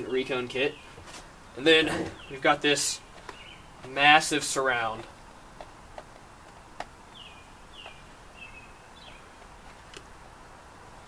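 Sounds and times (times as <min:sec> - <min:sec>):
bird chirps: 0:00.0 - 0:04.9, 0:07.1 - 0:09.5.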